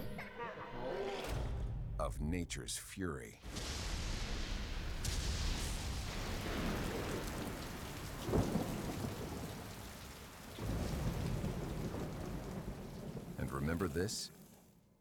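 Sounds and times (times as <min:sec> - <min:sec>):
sharp thunderclap: 0:03.4 - 0:13.4
thunder rumbling: 0:03.5 - 0:14.5
heavy rain: 0:03.5 - 0:14.8.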